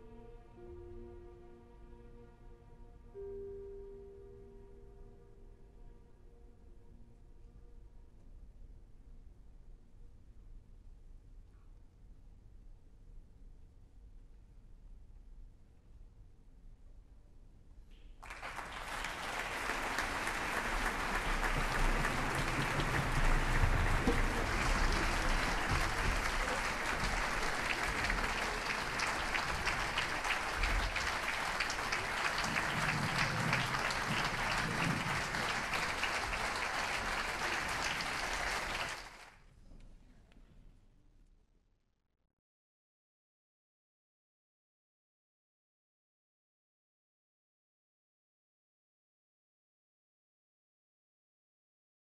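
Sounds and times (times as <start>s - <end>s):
audience applauding: 18.2s - 39.3s.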